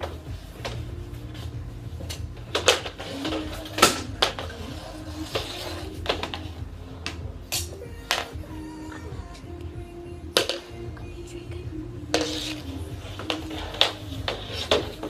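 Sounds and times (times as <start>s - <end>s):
hockey sticks and ball clacking: 12.2s - 15.0s.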